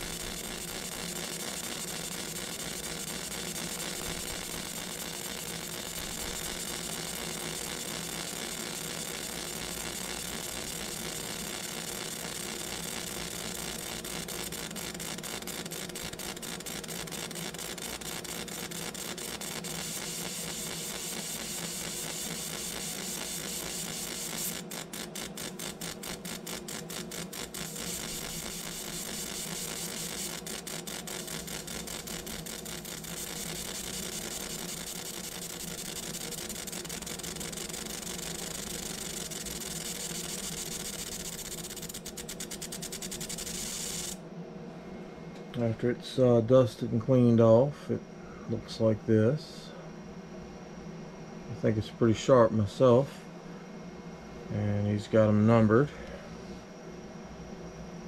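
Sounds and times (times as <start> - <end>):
laser engraver whirring and buzzing: 0.0 - 44.4.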